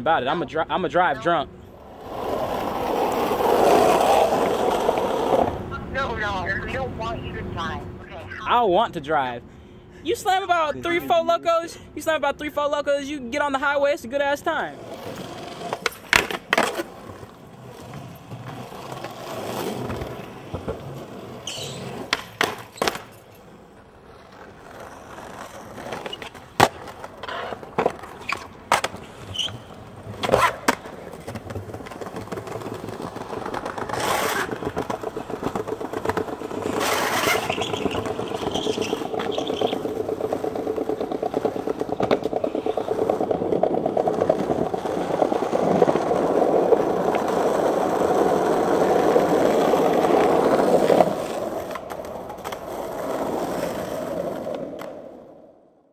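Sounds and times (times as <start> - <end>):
skateboard wheels rolling on pavement: 0.0 - 9.4, 10.1 - 55.9
skateboard clacks and slaps: 15.1 - 23.3, 24.2 - 55.3.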